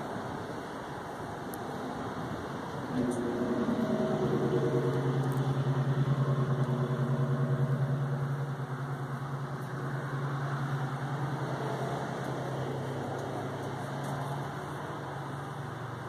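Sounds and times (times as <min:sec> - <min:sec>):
machine hum with pulsing flutter: 0:02.8 - 0:11.9.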